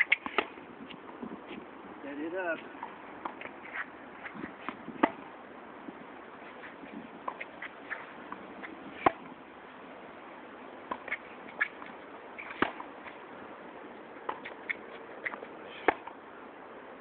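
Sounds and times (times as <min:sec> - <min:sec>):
tennis ball struck by rackets: 0:00.0 - 0:00.6, 0:02.6 - 0:05.3, 0:07.2 - 0:09.4, 0:10.9 - 0:13.0, 0:14.2 - 0:16.2
tennis ball bouncing on hard court: 0:00.0 - 0:01.0, 0:02.6 - 0:05.2, 0:07.2 - 0:09.3, 0:10.9 - 0:12.9.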